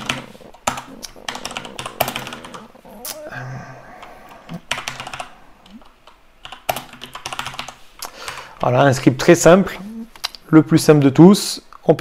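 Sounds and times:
keyboard typing: 0.0 - 3.2, 4.0 - 8.5.

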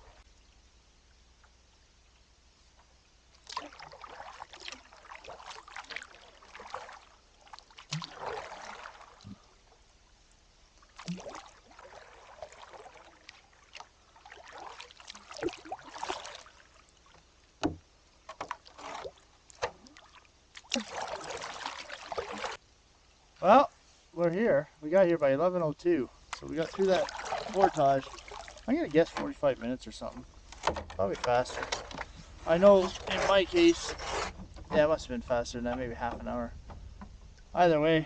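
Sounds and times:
paddle splashing in water: 3.3 - 9.8, 10.8 - 22.6, 26.3 - 29.4, 30.5 - 37.3.

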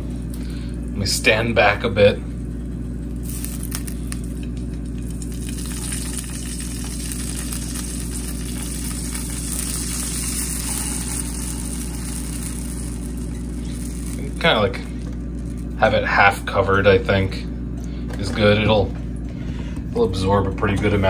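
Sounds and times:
steady low hum: 0.0 - 21.0
stock sizzling in a frying pan: 3.1 - 15.8.

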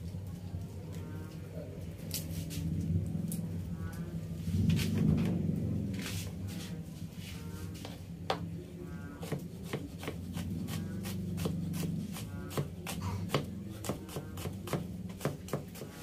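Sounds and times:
knife chopping on wooden board: 9.2 - 16.0.

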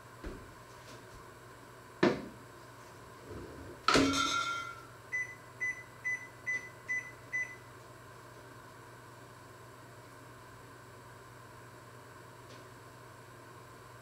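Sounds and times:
metallic clang ringing: 3.9 - 4.8
kitchen appliance beeps: 5.1 - 7.7.

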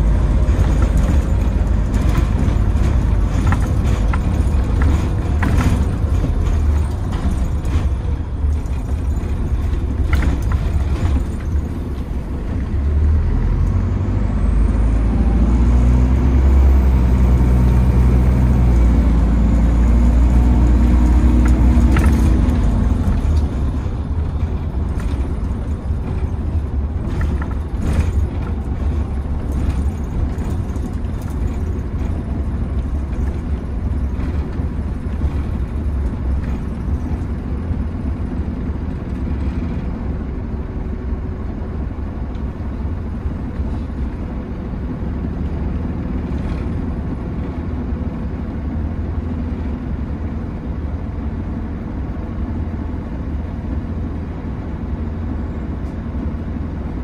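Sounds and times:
interior rattles: 0.0 - 13.9, 20.0 - 48.4
bus engine drone: 0.0 - 57.0
road rumble: 0.0 - 57.0.

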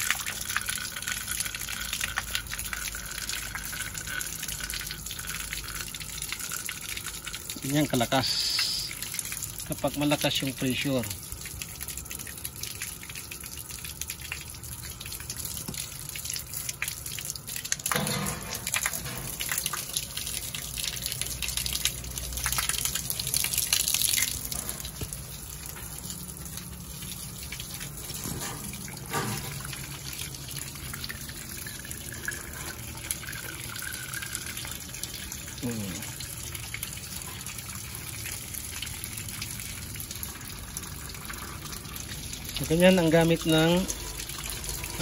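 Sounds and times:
water spurting and splashing on concrete: 0.0 - 45.0.

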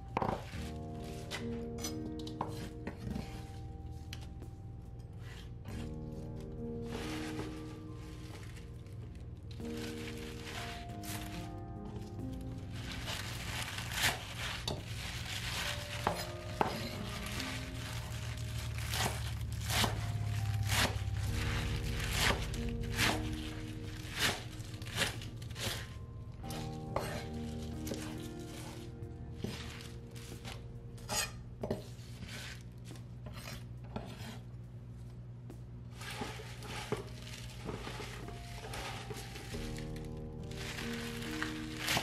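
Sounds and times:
knife scraping a board: 27.0 - 27.2, 31.1 - 34.5.

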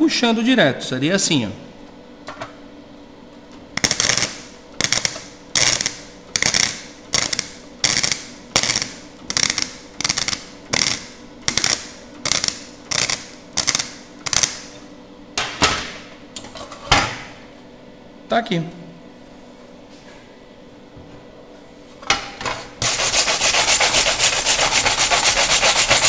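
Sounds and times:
welder arc bursts: 3.8 - 14.7.

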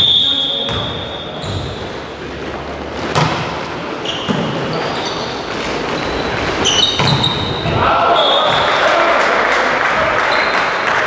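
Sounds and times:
shoes squeaking on court: 0.0 - 8.8
players' voices: 0.0 - 11.0
volleyball being hit: 3.0 - 4.6, 6.5 - 7.8.

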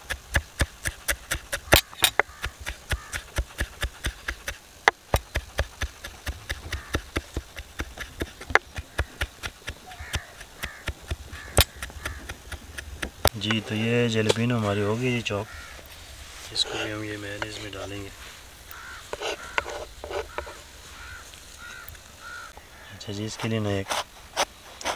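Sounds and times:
knife chopping on wooden board: 0.0 - 13.3.

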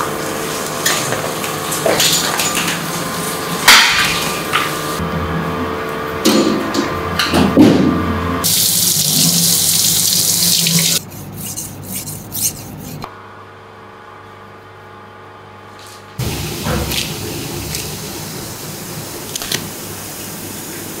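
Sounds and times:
water tap running: 0.0 - 5.0, 8.4 - 11.0, 16.2 - 21.0
knife on sharpening stone: 11.0 - 13.1.

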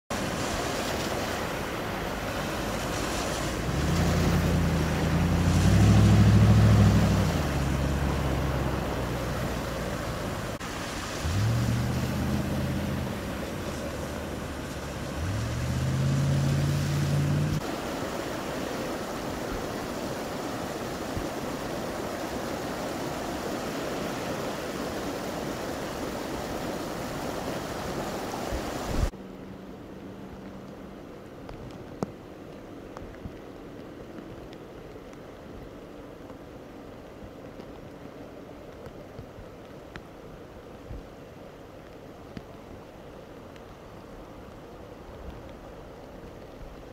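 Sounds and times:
rushing water and wind: 0.0 - 46.9
cars driving through floodwater: 0.1 - 46.9
vehicle engines accelerating: 2.6 - 17.6.

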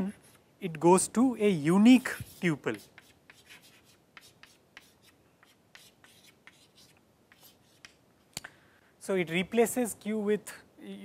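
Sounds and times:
chalk tapping and scratching: 1.9 - 8.0.

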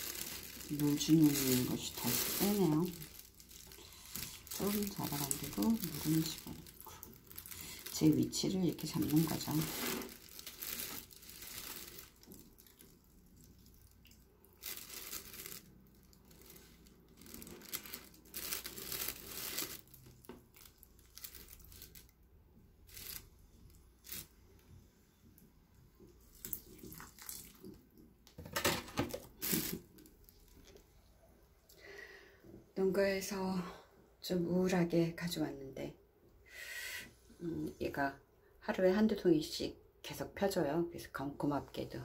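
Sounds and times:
water pouring onto potting soil: 0.0 - 20.0, 26.2 - 27.8.

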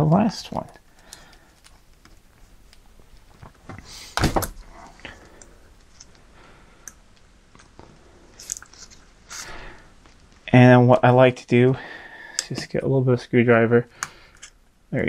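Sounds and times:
small clicks and rustles: 0.6 - 3.9, 4.8 - 10.5.

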